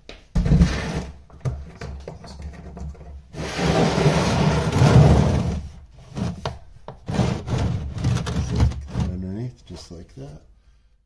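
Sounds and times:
drain pan scraping across floor: 0:00.4 - 0:01.2, 0:03.3 - 0:06.5, 0:07.1 - 0:09.3.

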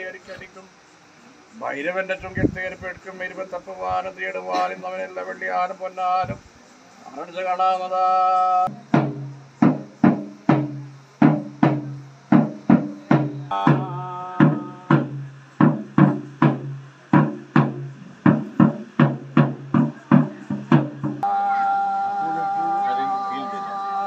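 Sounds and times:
drum strikes: 0:08.7 - 0:21.4.

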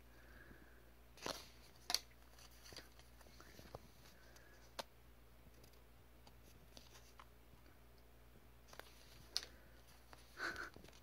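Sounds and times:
paper cards shuffled by hand: 0:01.2 - 0:04.9, 0:05.6 - 0:07.3, 0:08.7 - 0:11.0.

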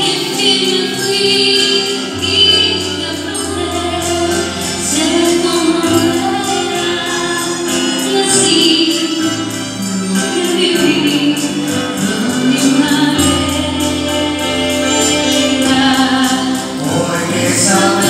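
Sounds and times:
bass notes: 0:02.2 - 0:18.0
choir-like singing: 0:13.6 - 0:18.0.

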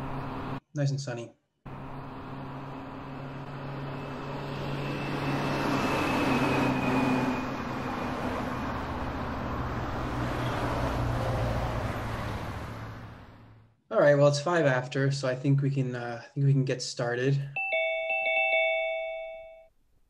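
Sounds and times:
vehicle engine hum: 0:00.0 - 0:00.6, 0:01.7 - 0:13.7.

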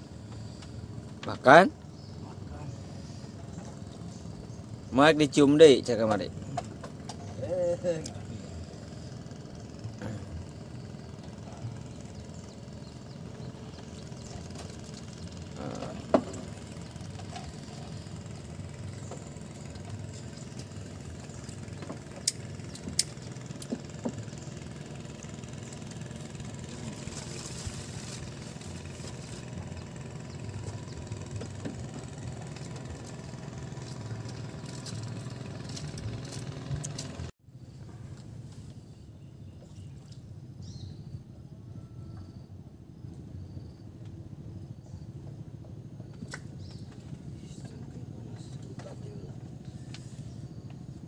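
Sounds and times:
engine humming: 0:00.0 - 0:37.3.

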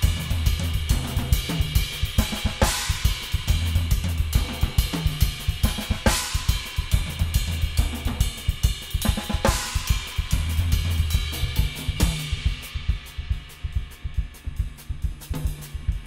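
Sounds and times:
drum kit solo: 0:00.0 - 0:16.0.

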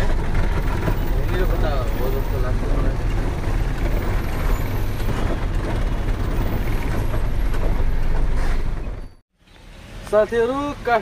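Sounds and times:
truck diesel engine running: 0:00.0 - 0:09.2
road noise: 0:00.0 - 0:11.0.

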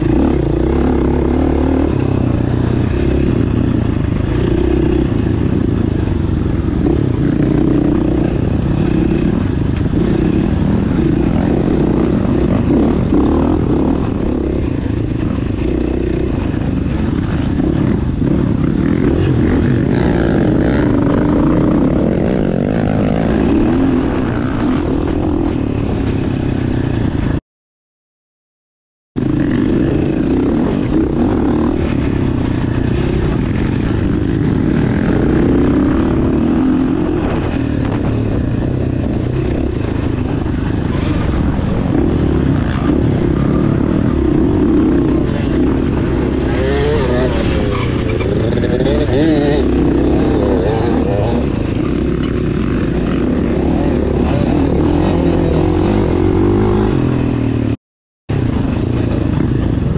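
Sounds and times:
dirt bike engine running: 0:00.0 - 0:27.4, 0:29.2 - 0:59.9.

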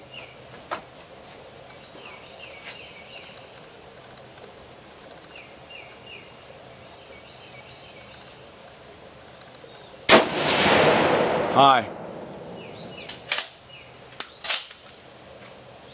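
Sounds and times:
steady low hiss: 0:00.0 - 0:15.9
small bird chirping: 0:12.6 - 0:14.5.

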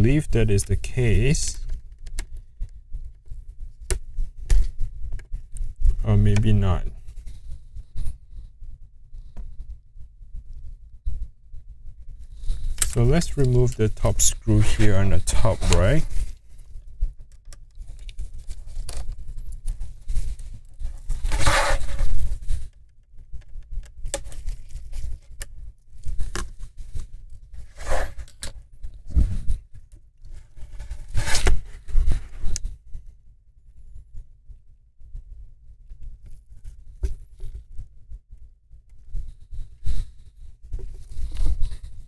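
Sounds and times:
plastic laptop parts scraping: 0:12.3 - 0:16.7, 0:17.3 - 0:29.6, 0:30.2 - 0:32.7.

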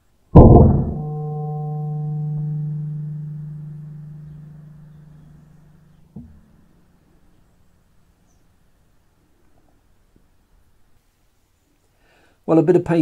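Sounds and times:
gong-like ringing tone: 0:00.4 - 0:06.4.

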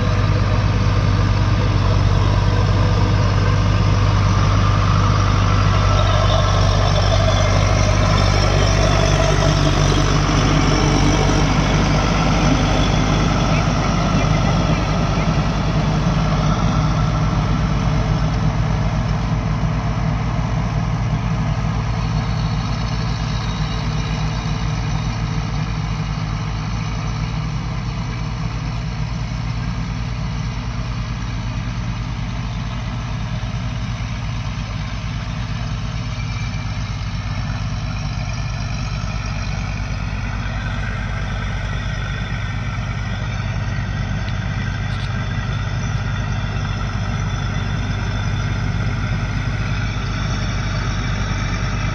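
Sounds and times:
tractor diesel engines running: 0:00.0 - 0:51.9.

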